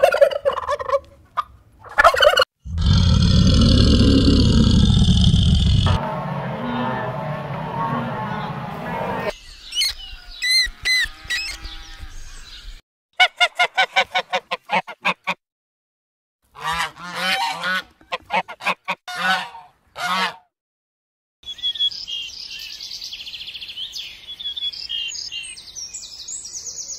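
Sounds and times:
geese honking: 5.9 - 9.3, 16.6 - 20.4.

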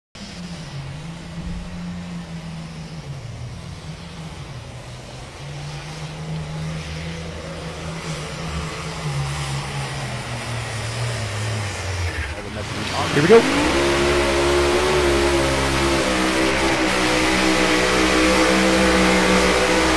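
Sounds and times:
tractor diesel engine under load: 10.1 - 19.9.

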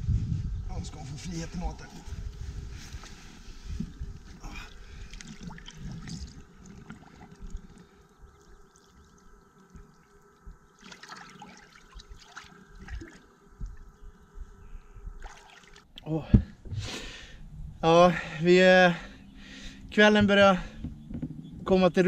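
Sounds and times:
water splashing and trickling: 2.9 - 13.9, 15.2 - 16.0.

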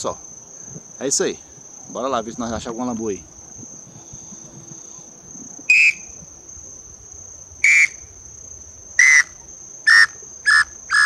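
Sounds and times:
high insect buzz: 0.0 - 11.0
wooden bird call whistle: 5.7 - 6.2, 7.6 - 8.0, 9.0 - 11.0.

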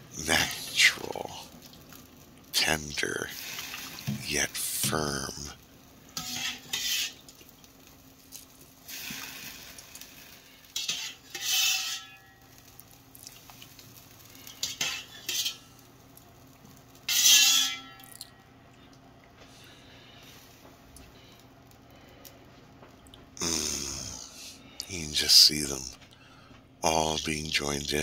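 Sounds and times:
boiling water: 0.0 - 22.0
wire skimmer scraping metal pot: 6.2 - 7.2, 10.8 - 12.3, 14.5 - 15.6, 17.1 - 18.0.

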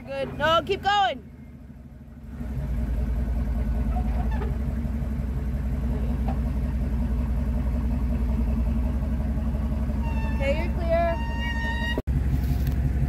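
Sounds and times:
truck engine rumbling: 0.0 - 13.0.

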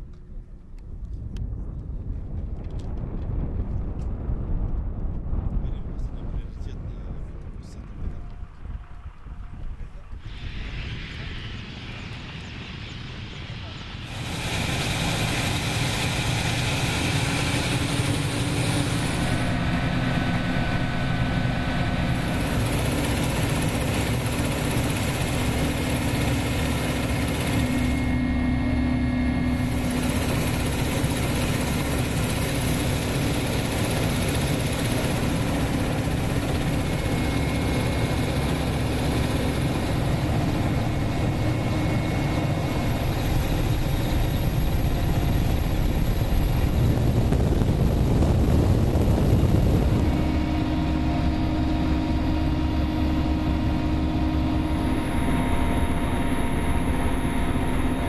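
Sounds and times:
helicopter engines and rotor: 0.0 - 58.0.

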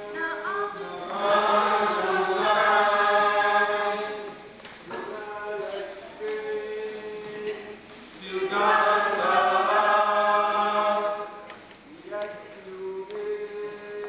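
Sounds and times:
group singing chant: 0.0 - 14.0.

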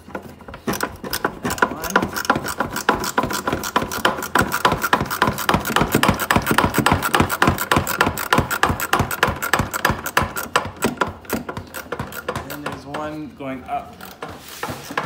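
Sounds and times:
ratchet clicking: 0.7 - 12.8.

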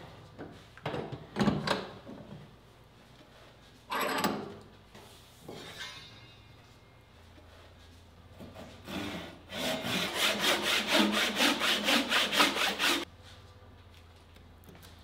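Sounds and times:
hand saw cutting wood: 8.5 - 13.1.

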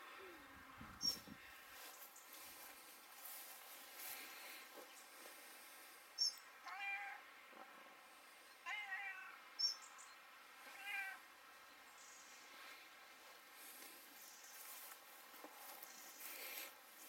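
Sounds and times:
cat meowing: 6.7 - 7.2, 8.7 - 9.4, 10.7 - 11.2.

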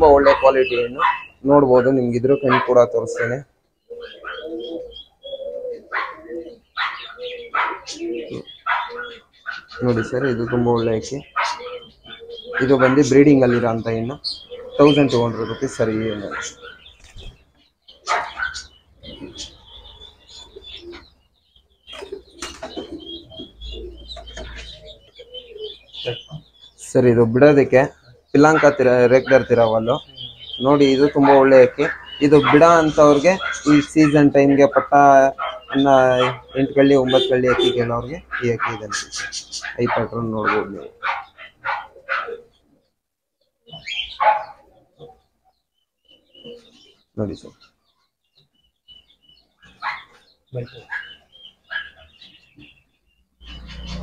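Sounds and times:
pigeons cooing: 0.0 - 54.0
wings flapping: 17.0 - 17.4, 21.9 - 23.2.

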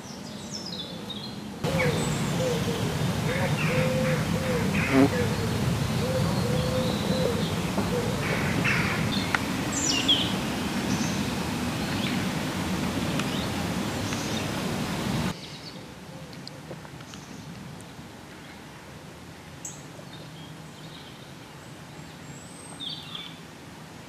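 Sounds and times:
birds chirping and calling: 0.5 - 11.3
low outdoor rumble: 1.4 - 15.3.

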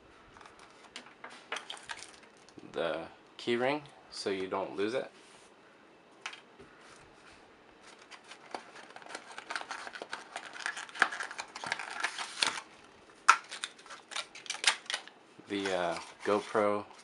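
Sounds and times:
cardboard packaging rummaged: 7.8 - 12.6.

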